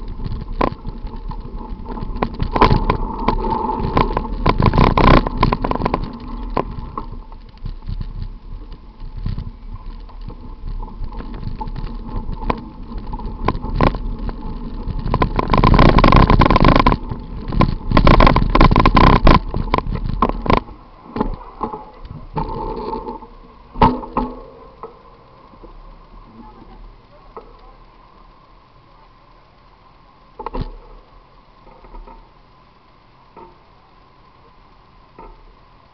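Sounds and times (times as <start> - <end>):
bicycle rattling over road: 0.0 - 28.1.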